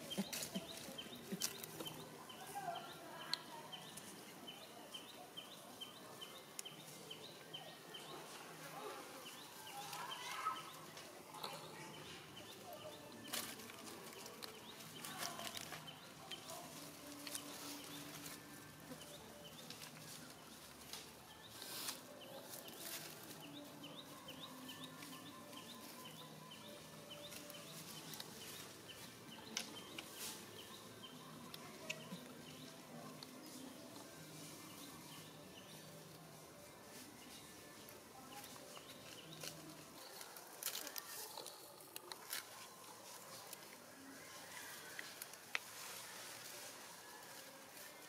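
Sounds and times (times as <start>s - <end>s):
birds chirping: 0.0s - 45.5s
rustling of dry leaf litter: 7.8s - 48.0s.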